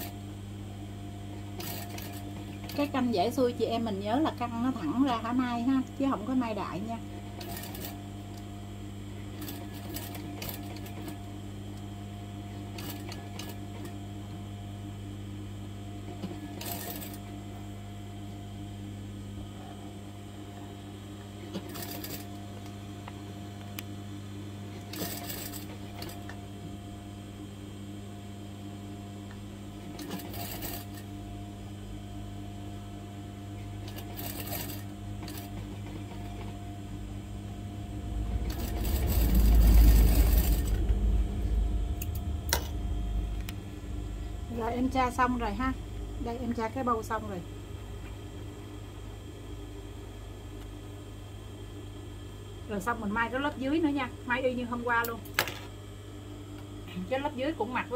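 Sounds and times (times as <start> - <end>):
sewing machine humming: 0.0 - 0.2, 1.3 - 8.4, 9.2 - 14.4, 16.0 - 17.6, 21.4 - 22.4, 24.6 - 26.7, 29.7 - 31.2, 33.6 - 47.9.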